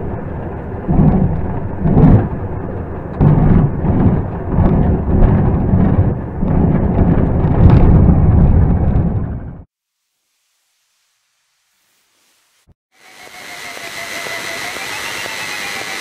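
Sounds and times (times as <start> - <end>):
airframe jolting over ground: 0.0 - 9.7
wind buffeting microphone: 0.0 - 9.7.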